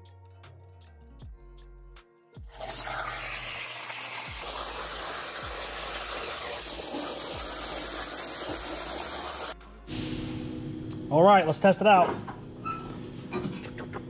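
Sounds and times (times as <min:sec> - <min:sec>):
plasma cutter arc hissing: 0:02.5 - 0:09.6.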